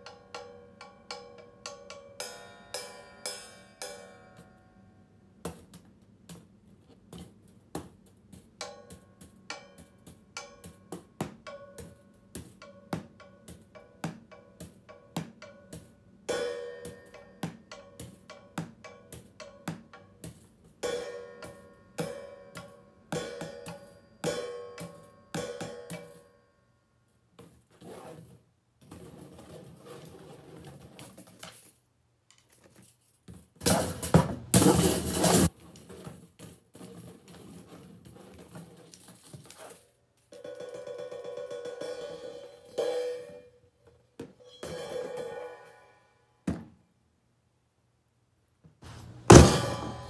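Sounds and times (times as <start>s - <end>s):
cymbal struck with drumstick: 49.3s - 50.0s.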